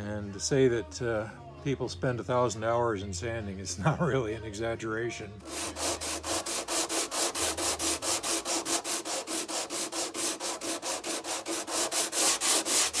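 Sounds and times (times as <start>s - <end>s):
hand sanding with sandpaper: 5.4s - 13.0s.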